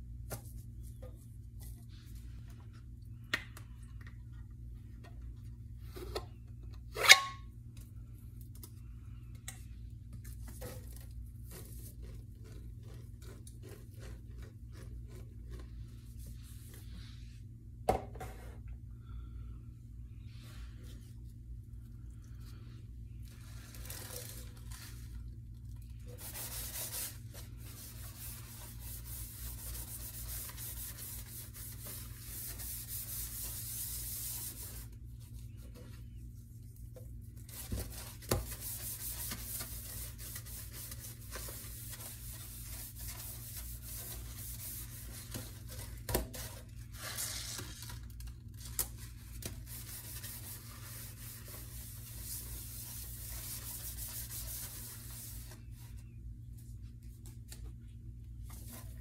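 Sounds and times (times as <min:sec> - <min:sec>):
sponge scrubbing steel sink: 0:26.0 - 0:35.7, 0:37.4 - 0:47.3, 0:49.4 - 0:55.6.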